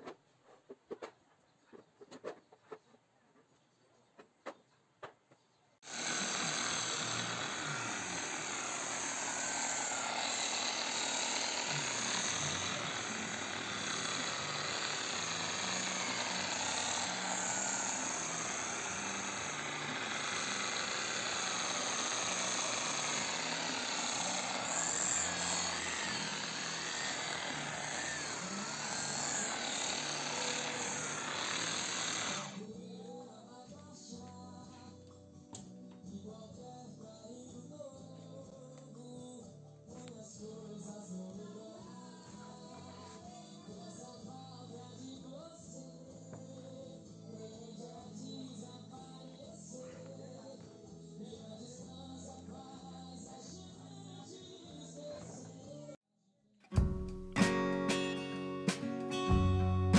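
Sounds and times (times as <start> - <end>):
power tool running on wood: 5.8 - 32.7.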